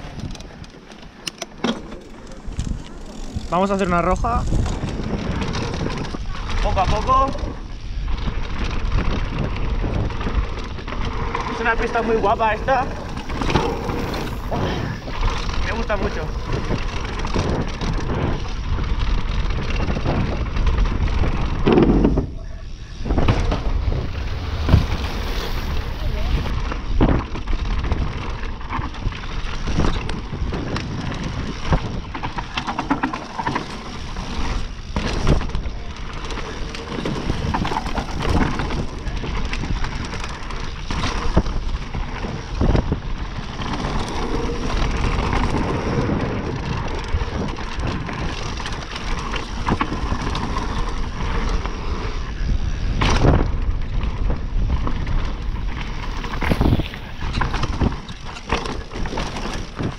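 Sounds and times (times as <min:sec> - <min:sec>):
bike knocking and rattling: 0:00.0 - 0:59.9
wind: 0:00.0 - 0:59.9
tyres rushing on dirt: 0:01.8 - 0:26.7, 0:27.5 - 0:59.9.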